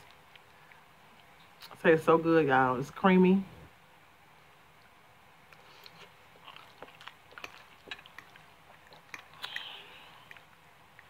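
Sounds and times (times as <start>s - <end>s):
person chewing noodles: 5.5s - 11.0s.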